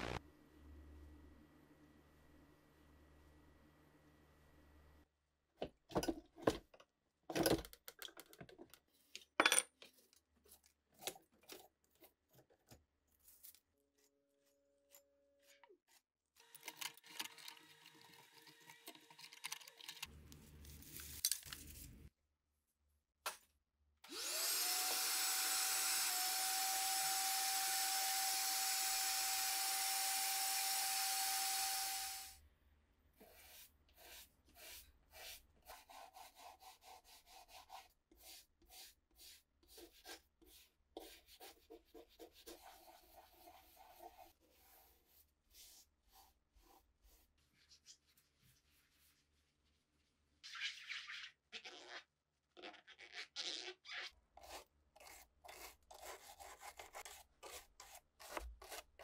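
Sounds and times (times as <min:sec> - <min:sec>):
vacuum cleaner whine: 0:00.0 - 0:00.2, 0:24.1 - 0:32.4.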